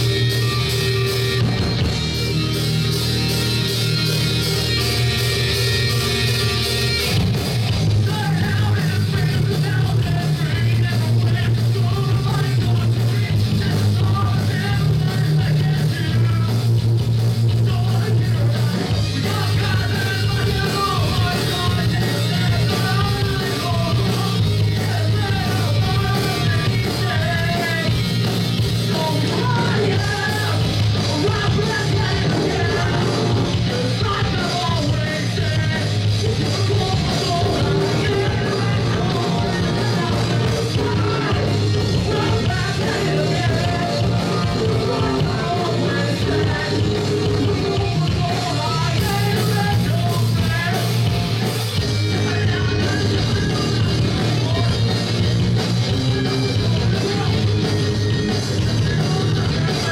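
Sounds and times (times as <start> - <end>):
live rock band playing: 0.0 - 59.9
person singing and shouting: 7.9 - 16.6, 28.8 - 51.1, 52.1 - 55.2, 58.8 - 59.9.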